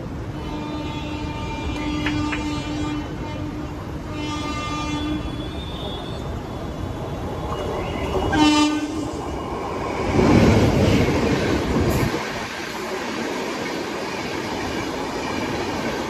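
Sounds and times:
train wheels rumbling on rails: 0.0 - 16.0
locomotive horn blasts: 0.3 - 6.6, 8.2 - 9.0.

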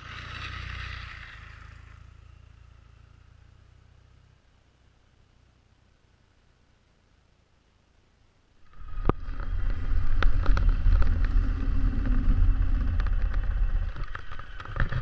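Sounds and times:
motorcycle engine rumbling: 8.6 - 15.0.

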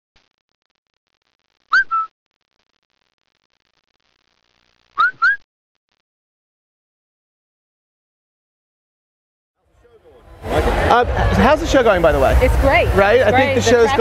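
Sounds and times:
whistle-like chirps: 1.7 - 2.1, 5.0 - 5.5.

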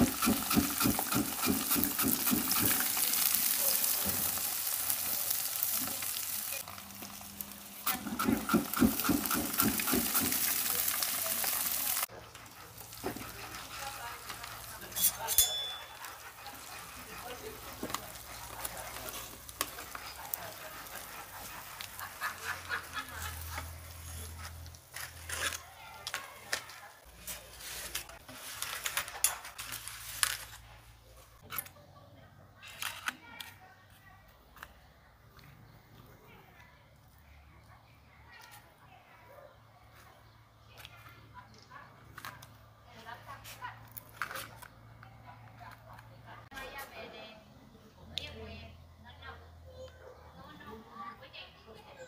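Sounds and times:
fire crackling and popping: 0.0 - 25.0
vegetables sizzling over charcoal: 0.0 - 31.4
tongs clattering on foil trays: 7.9 - 30.8.

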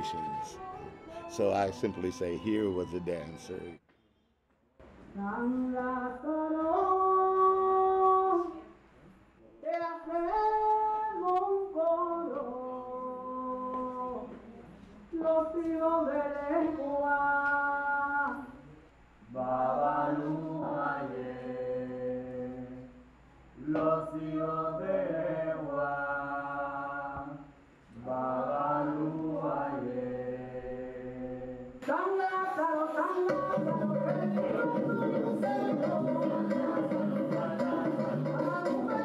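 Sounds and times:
voices singing a chant: 0.0 - 3.4, 19.3 - 23.0, 23.6 - 39.0
music with instruments: 0.0 - 3.8, 32.2 - 39.0.

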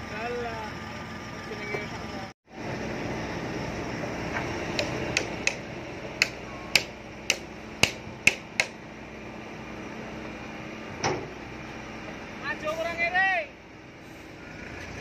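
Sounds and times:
diesel engine running: 0.0 - 15.0
sharp metallic knocks: 4.7 - 5.6, 6.2 - 8.8.

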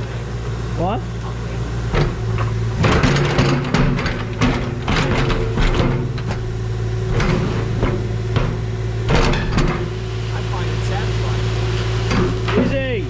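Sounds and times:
excavator diesel engine running: 0.0 - 13.0
metal bucket knocking and scraping: 1.9 - 10.0.

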